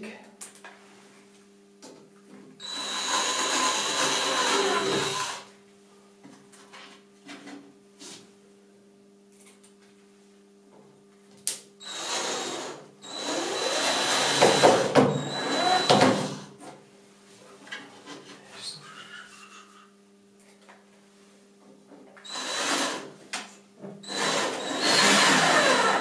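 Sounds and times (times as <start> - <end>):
cordless drill whining: 2.6 - 5.5, 11.8 - 16.4, 22.3 - 23.1, 24.0 - 26.0.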